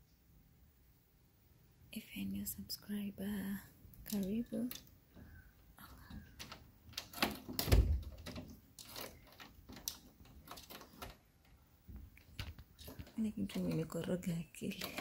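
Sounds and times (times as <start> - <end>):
clicks and knocks: 6.0 - 15.0.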